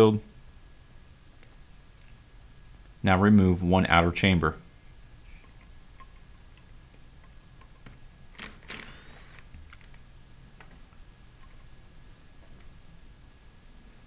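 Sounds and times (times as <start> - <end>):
scraping clicks: 5.4 - 10.0.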